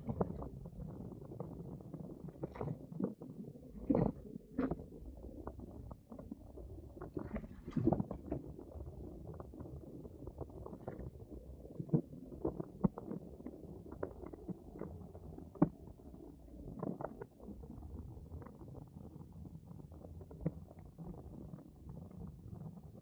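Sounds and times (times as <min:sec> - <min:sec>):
water slapping against hull: 0:07.2 - 0:08.4.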